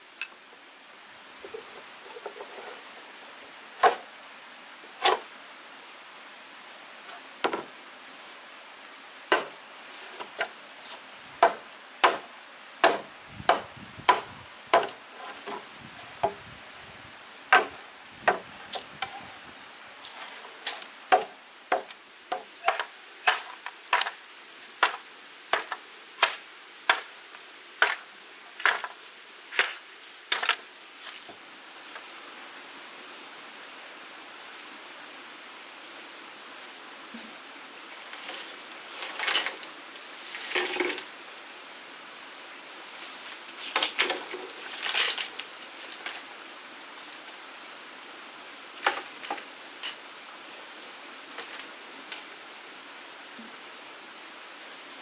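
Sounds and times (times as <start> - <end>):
tool chopping wood: 3.8 - 4.0, 9.3 - 9.5, 11.4 - 15.0, 17.5 - 18.4, 21.1 - 24.1, 24.8 - 27.1.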